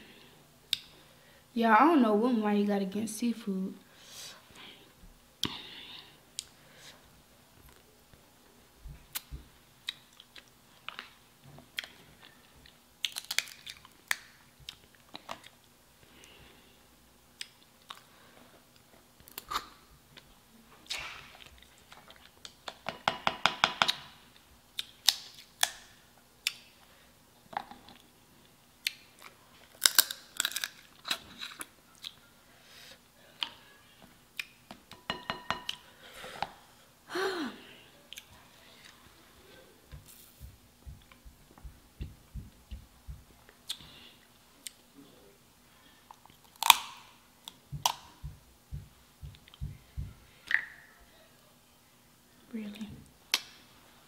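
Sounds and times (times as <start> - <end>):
person chewing with mouth clicks: 9.1 - 15.6, 17.4 - 18.1.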